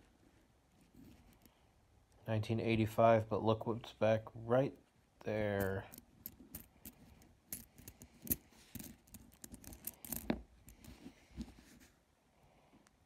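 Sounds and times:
coins clicking together: 0:05.6 - 0:10.8.

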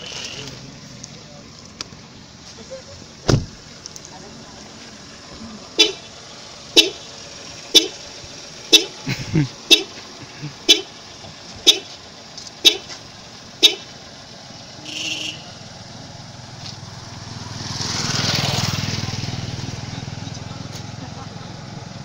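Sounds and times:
vehicle engine: 0:00.0 - 0:22.0
car warning beeps: 0:05.8 - 0:06.1, 0:06.7 - 0:07.1, 0:07.7 - 0:08.0, 0:08.7 - 0:09.0, 0:09.7 - 0:10.0, 0:10.6 - 0:11.0, 0:11.6 - 0:12.0, 0:13.6 - 0:13.9.

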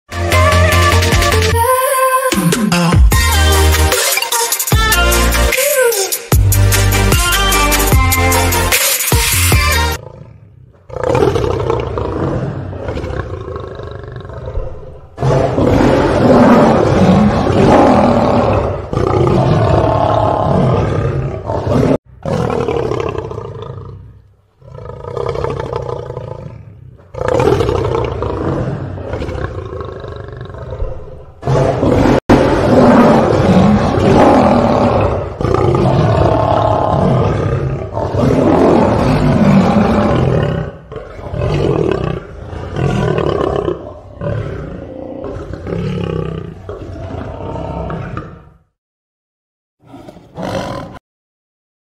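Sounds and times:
lion roaring and growling: 0:10.0 - 0:48.7, 0:49.8 - 0:51.0.

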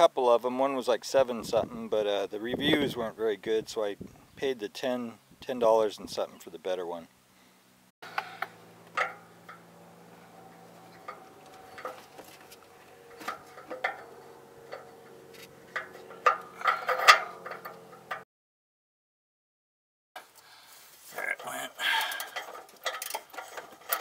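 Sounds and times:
faint steady hum: 0:07.1 - 0:18.2
metal wrench clicks and knocks: 0:13.2 - 0:18.2, 0:22.1 - 0:24.0.

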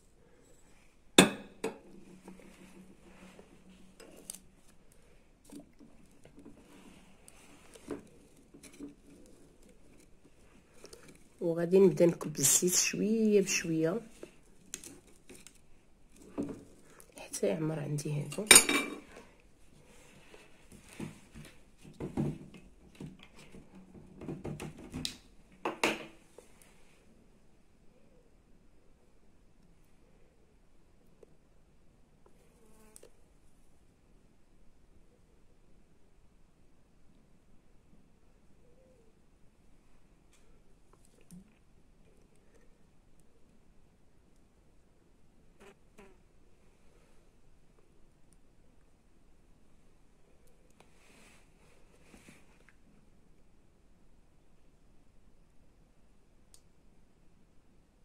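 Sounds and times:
glass clinking on ceramic tray: 0:18.5 - 0:19.0.

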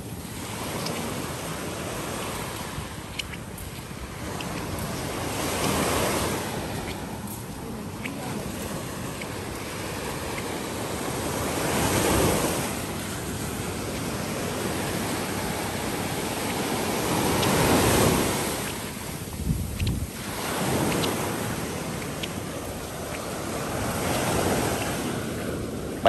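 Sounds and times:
small waves breaking on beach: 0:00.0 - 0:26.0.

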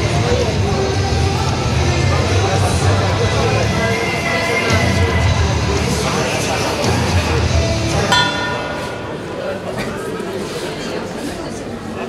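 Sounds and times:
music playing: 0:00.0 - 0:09.7
ring bell striking: 0:08.1 - 0:09.2.

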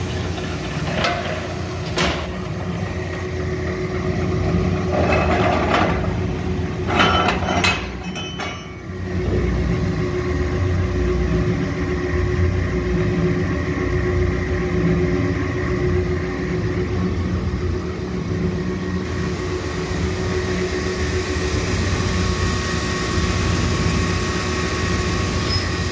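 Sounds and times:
knocks and rattles of metal parts: 0:06.9 - 0:08.9
grinder motor humming: 0:19.0 - 0:25.9.

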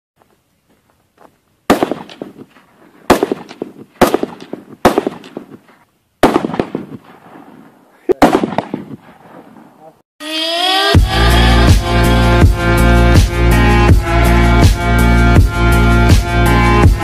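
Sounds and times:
handgun shots echoing: 0:01.7 - 0:02.4, 0:03.1 - 0:05.6, 0:06.2 - 0:07.5, 0:08.2 - 0:09.5.

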